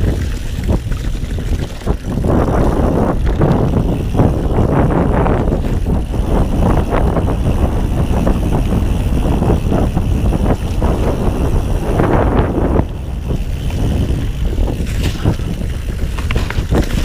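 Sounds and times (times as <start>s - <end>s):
bike knocking and rattling: 0.0s - 17.0s
bike tyres on dirt: 0.0s - 17.0s
wind on microphone: 0.0s - 17.0s.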